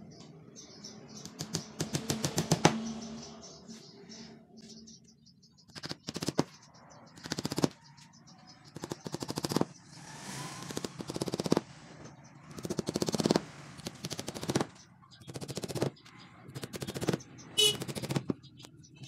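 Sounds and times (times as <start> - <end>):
hammer tapping nails: 1.2 - 2.8, 5.8 - 6.5, 7.2 - 7.8, 8.8 - 9.7, 10.6 - 11.6, 12.5 - 18.4.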